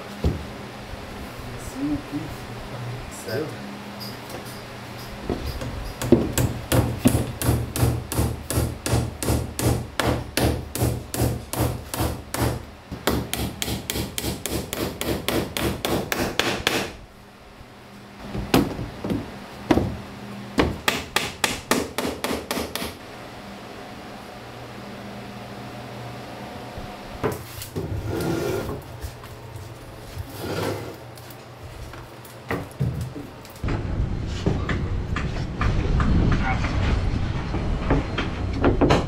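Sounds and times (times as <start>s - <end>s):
hammer striking wood: 6.0s - 17.0s, 18.3s - 20.0s, 20.6s - 23.0s.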